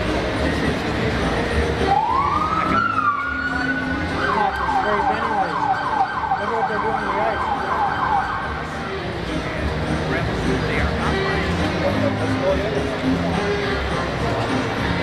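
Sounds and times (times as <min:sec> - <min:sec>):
siren wailing and yelping: 0:01.9 - 0:08.6.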